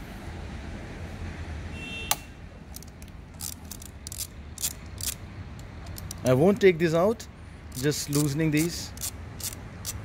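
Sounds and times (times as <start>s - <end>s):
wrench clicking: 2.7s - 6.4s, 7.7s - 10.0s.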